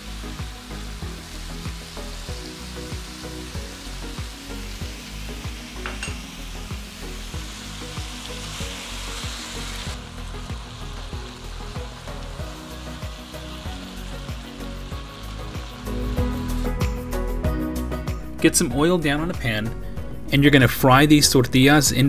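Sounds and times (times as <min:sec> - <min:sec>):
meat sizzling in a skillet: 0:00.0 - 0:17.5
background music with low beat: 0:00.0 - 0:22.0.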